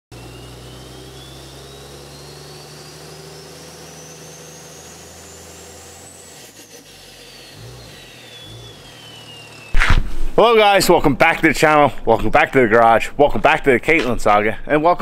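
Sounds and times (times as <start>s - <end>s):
engine low drone: 0.1s - 10.4s
rising high whistle: 0.2s - 10.4s.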